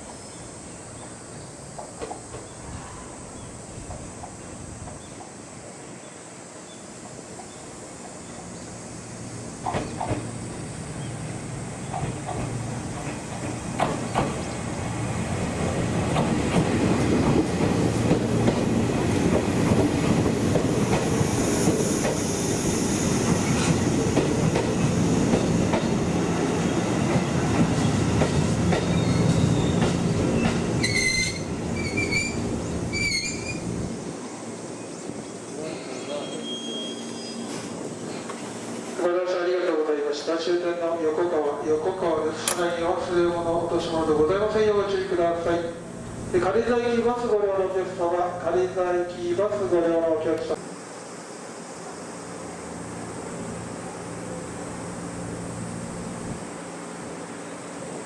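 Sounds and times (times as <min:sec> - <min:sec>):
train wheels knocking over rail joints: 0:09.6 - 0:10.3, 0:11.9 - 0:14.6
wheel squeal: 0:28.8 - 0:29.8, 0:30.4 - 0:33.7, 0:36.1 - 0:37.6
short chirping tones: 0:36.1 - 0:37.5.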